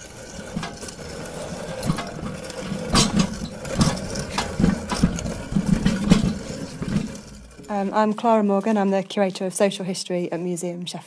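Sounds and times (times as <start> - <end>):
clanks and rattles: 0.0 - 8.2.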